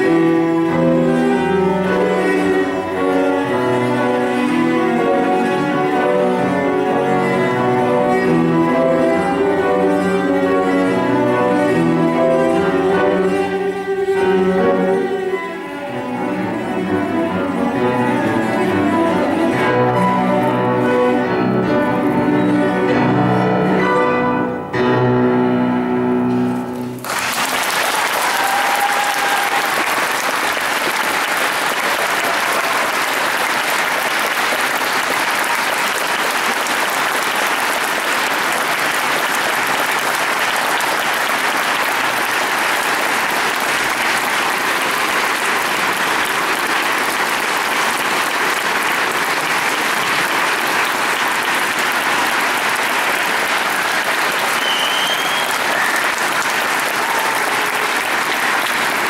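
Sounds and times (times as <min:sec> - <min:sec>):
audience applauding: 0:00.0 - 0:10.3, 0:26.6 - 0:59.0.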